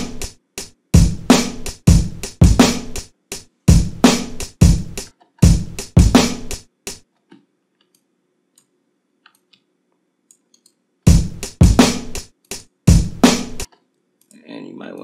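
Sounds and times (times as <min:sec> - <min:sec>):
drum loop samples: 0:00.0 - 0:07.1, 0:11.0 - 0:13.7.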